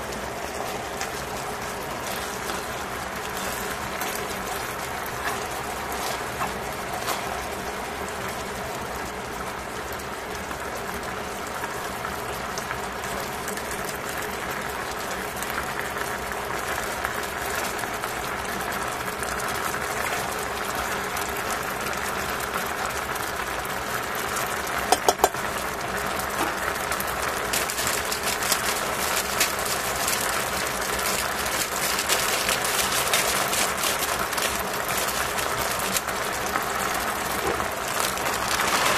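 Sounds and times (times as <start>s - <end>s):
sauce bubbling in a pot: 0.0s - 38.9s.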